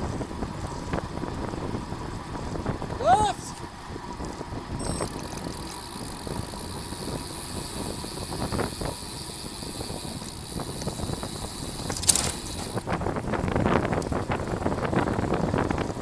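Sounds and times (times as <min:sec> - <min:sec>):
wind and road noise from bicycle: 0:00.0 - 0:16.0
short sharp rattle: 0:11.8 - 0:12.8.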